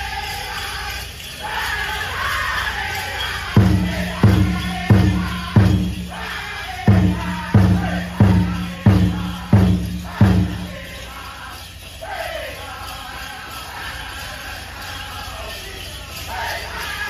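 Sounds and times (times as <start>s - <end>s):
large drum steady beat: 3.6s - 10.9s.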